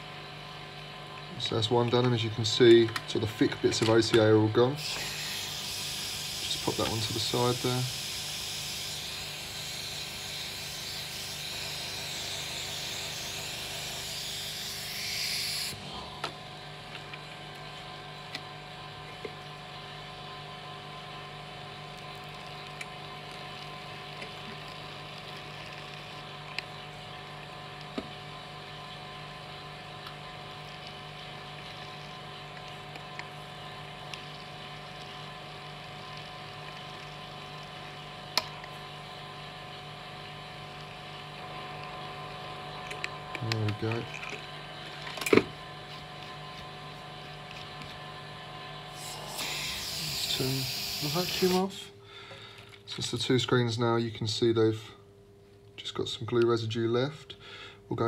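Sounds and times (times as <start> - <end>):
small motor humming: 4.6 - 16.7, 43.0 - 51.8
air hissing into vacuum mat: 49.0 - 51.7.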